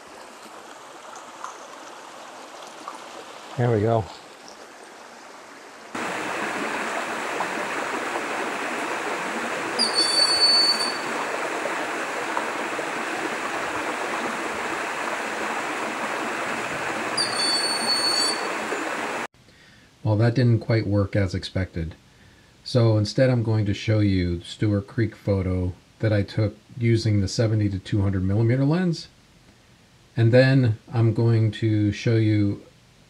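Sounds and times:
flowing water rushing: 0:00.0 - 0:19.3
hawk whistled calls: 0:09.7 - 0:11.2, 0:17.2 - 0:18.8.

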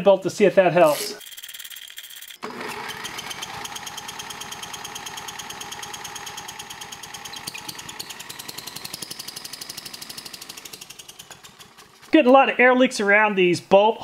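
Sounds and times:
drill motor whine: 0:01.2 - 0:09.8
engine chugging while cranked: 0:01.2 - 0:12.7.

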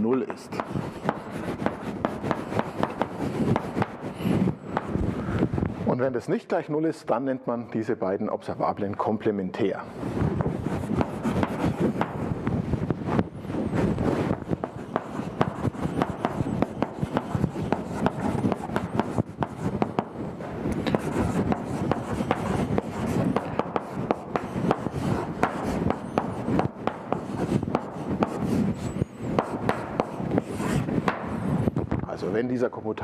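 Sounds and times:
chalk tapping and scratching on blackboard: 0:00.0 - 0:05.1, 0:10.2 - 0:12.4, 0:13.2 - 0:20.2, 0:20.8 - 0:31.4.

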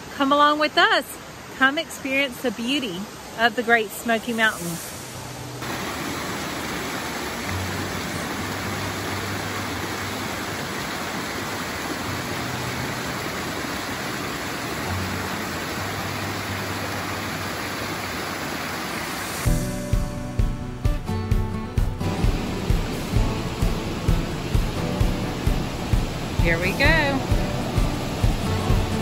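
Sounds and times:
stream water rushing: 0:00.0 - 0:29.0
music: 0:07.4 - 0:10.6, 0:11.9 - 0:13.8, 0:14.6 - 0:17.5, 0:19.5 - 0:29.0.

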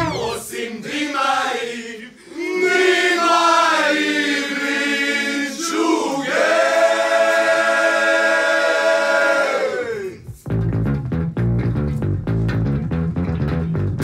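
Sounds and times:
group singing unaccompanied: 0:00.0 - 0:10.2.

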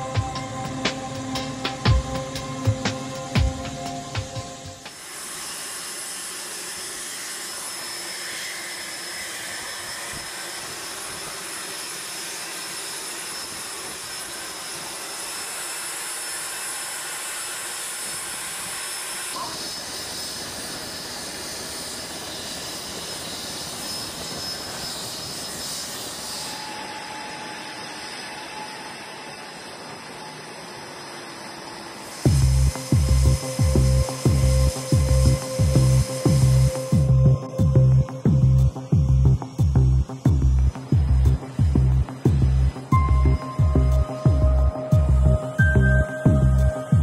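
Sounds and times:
aircraft engines hissing and whining: 0:00.0 - 0:47.0.

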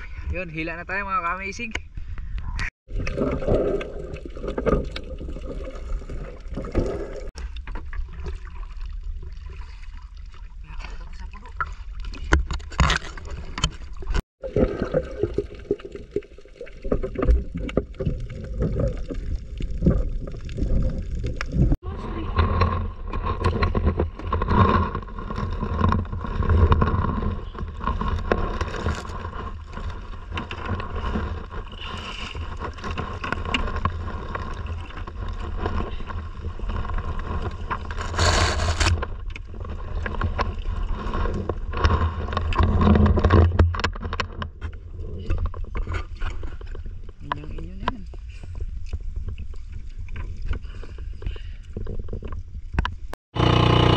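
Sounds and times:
water noise: 0:00.0 - 0:53.9
wind: 0:00.0 - 0:53.9.

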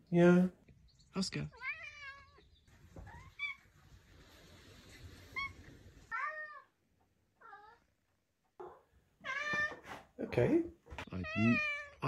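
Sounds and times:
cats meowing: 0:01.5 - 0:03.8, 0:05.2 - 0:08.0, 0:08.6 - 0:10.0, 0:11.1 - 0:12.0.

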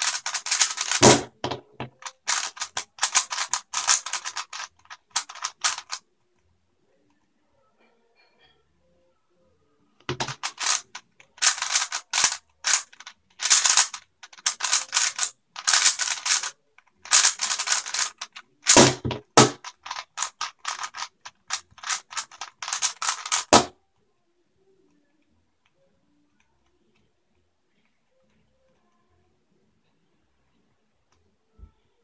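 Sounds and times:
puzzle cube clicking: 0:00.0 - 0:06.0, 0:10.0 - 0:23.7.

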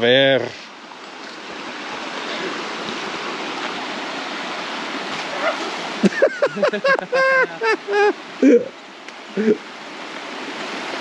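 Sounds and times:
creek rushing over stones: 0:00.0 - 0:11.0
voices: 0:05.2 - 0:08.7.

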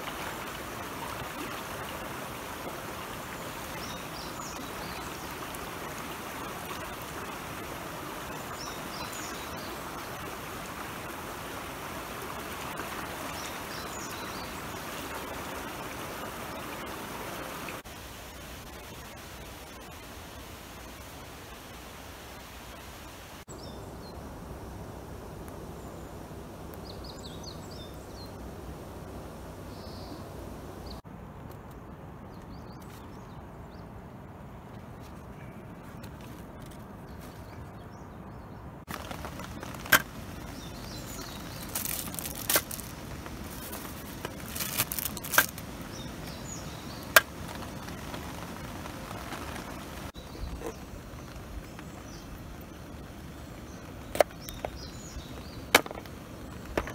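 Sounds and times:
outdoor background noise: 0:00.0 - 0:56.9.

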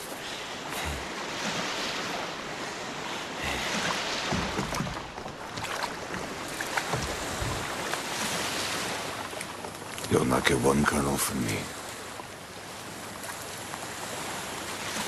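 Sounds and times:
sea washing on pebble beach: 0:00.0 - 0:11.9
wind: 0:00.0 - 0:15.0
dull thumps: 0:04.2 - 0:05.7, 0:06.8 - 0:07.8.

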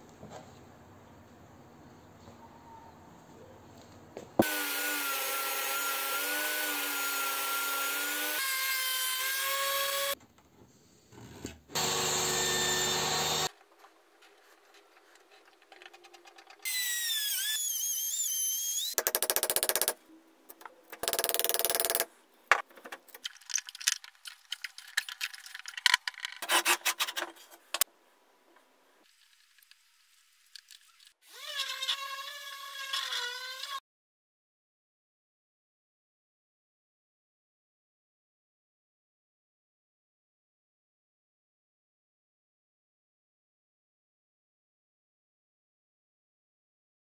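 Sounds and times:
woodworking power tools whining: 0:04.4 - 0:10.2, 0:11.7 - 0:13.5.

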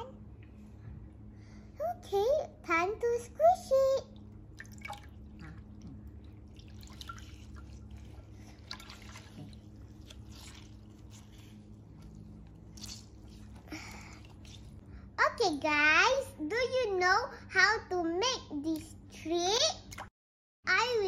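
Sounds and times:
water dripping: 0:04.1 - 0:14.8
wet paper towels squished: 0:04.6 - 0:14.8.

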